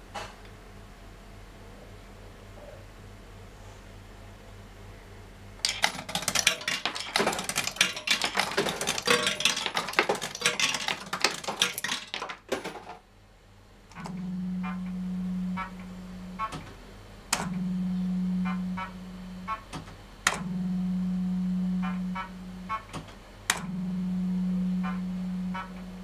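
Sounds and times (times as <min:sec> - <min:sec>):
low steady hum: 0:00.0 - 0:26.0
fruit machine reels clattering: 0:05.6 - 0:13.0.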